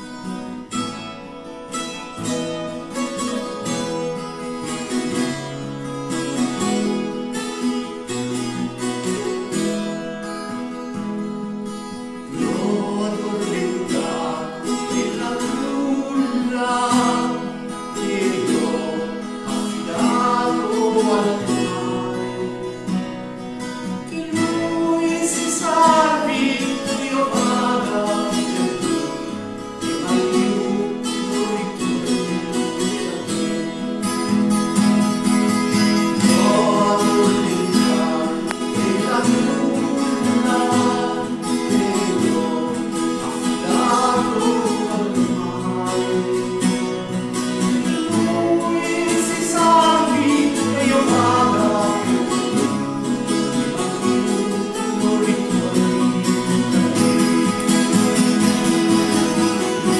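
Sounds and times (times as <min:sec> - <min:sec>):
acoustic guitar: 0:00.0 - 0:59.9
bouzouki: 0:00.0 - 0:59.9.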